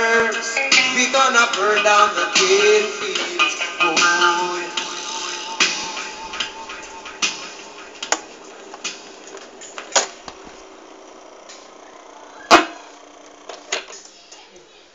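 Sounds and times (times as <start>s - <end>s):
vinyl hiss and crackle: 0.0s - 14.9s
vinyl pops: 5.6s - 14.1s.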